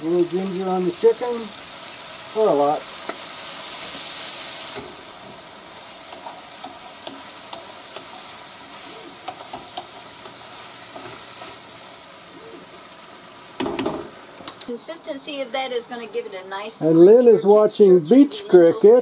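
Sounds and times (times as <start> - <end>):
chicken sizzling in oil: 0.0 - 16.3
spoon scraping a pan: 3.0 - 11.7.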